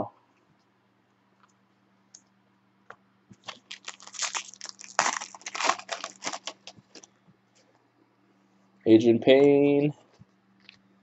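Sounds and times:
foil wrapper crinkling and tearing: 0:03.4 - 0:07.1.

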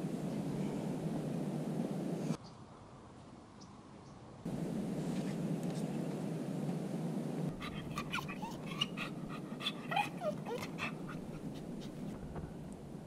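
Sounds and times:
dog whining: 0:07.5 - 0:12.1
dog sniffing and panting: 0:07.5 - 0:12.2.

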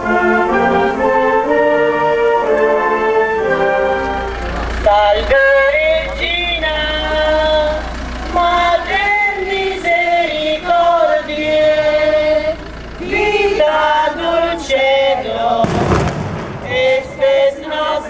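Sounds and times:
other voices singing: 0:00.0 - 0:18.0
woman singing a hymn: 0:04.8 - 0:15.7, 0:16.6 - 0:18.0.

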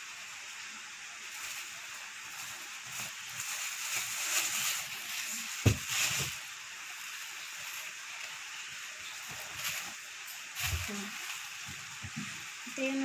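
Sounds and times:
plastic bags rustling: 0:01.2 - 0:13.0
bag thumping on table: 0:05.6 - 0:06.3.

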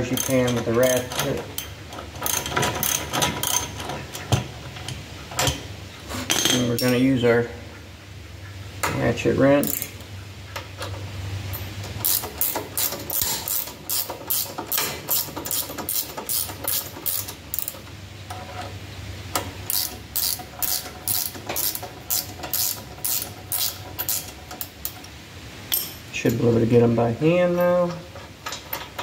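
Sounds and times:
ratchet wrench clicking: 0:00.1 - 0:03.8, 0:09.6 - 0:10.0, 0:12.0 - 0:17.8, 0:19.7 - 0:25.0.

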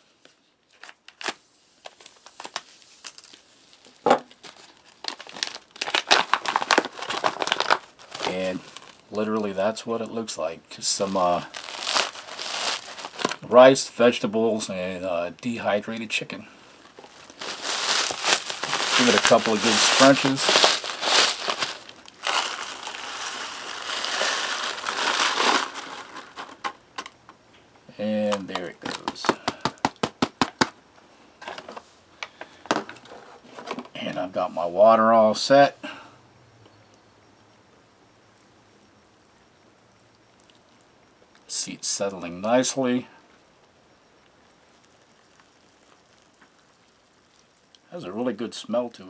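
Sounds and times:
foil pouch crinkling and tearing: 0:00.7 - 0:09.6, 0:10.8 - 0:13.6, 0:16.8 - 0:27.1, 0:44.4 - 0:47.7.

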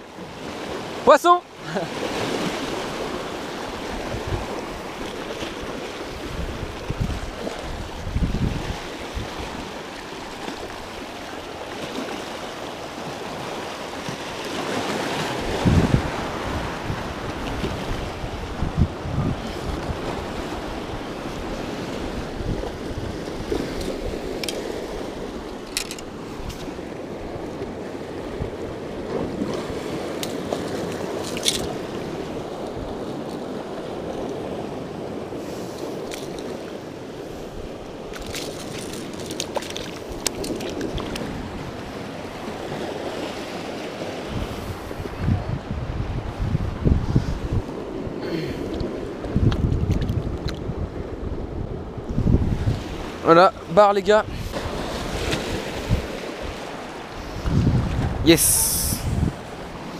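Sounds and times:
surf washing over rocks: 0:00.0 - 0:59.9
wind buffeting microphone: 0:02.2 - 0:11.7, 0:13.0 - 0:59.9.

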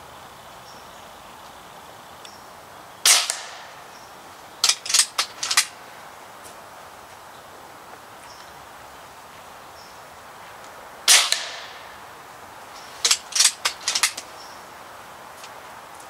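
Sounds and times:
air rifle shot: 0:03.0 - 0:03.9, 0:11.1 - 0:12.0
rifle action clicks: 0:04.6 - 0:05.8, 0:13.0 - 0:14.3.

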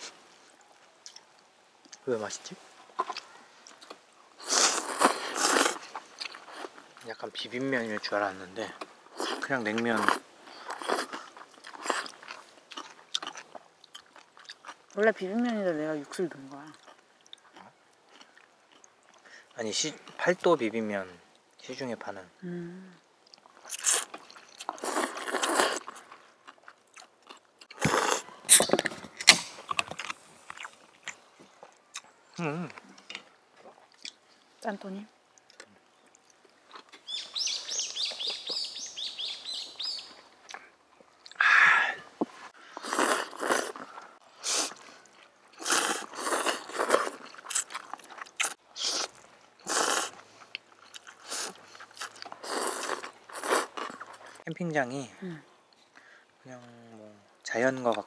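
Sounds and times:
noodles slurped and chewed: 0:03.0 - 0:06.8, 0:09.1 - 0:14.8, 0:23.3 - 0:31.8, 0:42.6 - 0:54.4
noodles being slurped: 0:04.4 - 0:06.7, 0:23.7 - 0:26.0, 0:42.7 - 0:44.9, 0:45.6 - 0:50.2, 0:51.1 - 0:54.4.

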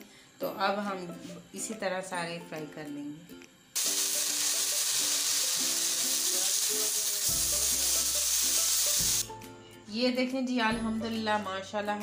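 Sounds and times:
fish sizzling in a pan: 0:03.8 - 0:09.3.

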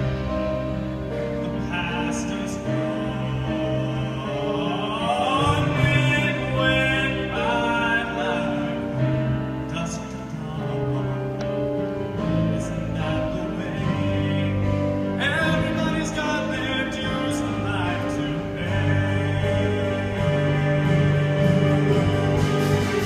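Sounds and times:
choir singing: 0:01.6 - 0:09.9, 0:16.4 - 0:23.0.

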